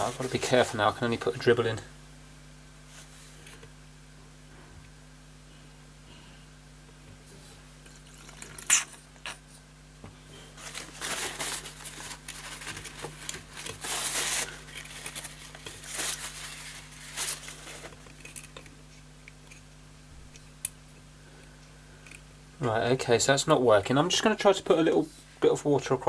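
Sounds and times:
paper tissue rustling and crinkling: 0:00.0 - 0:01.0, 0:10.3 - 0:19.1.

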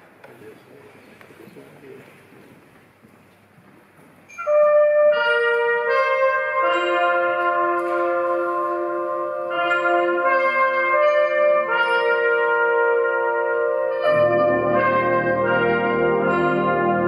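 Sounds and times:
brass band playing ballad: 0:04.3 - 0:17.0.

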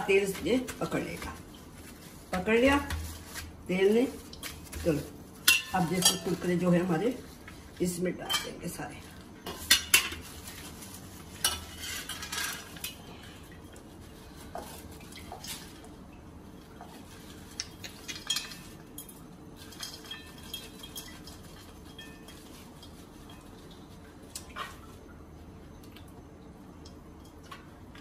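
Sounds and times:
metal skimmer clinking on plates: 0:05.4 - 0:06.5, 0:08.2 - 0:08.6.

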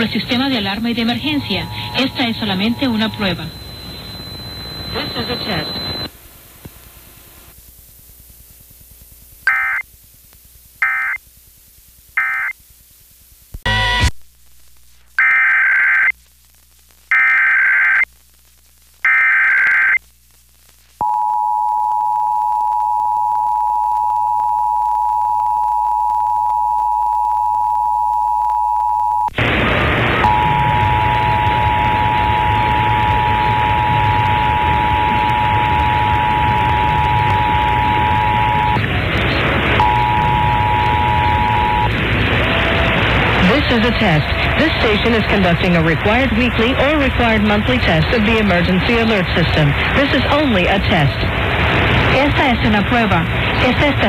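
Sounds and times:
loud static hiss: 0:00.0 - 0:21.0, 0:29.3 - 0:54.0
data bursts: 0:00.3 - 0:06.1, 0:39.8 - 0:42.0
two-tone attention signal: 0:01.2 - 0:06.1, 0:39.8 - 0:41.9.

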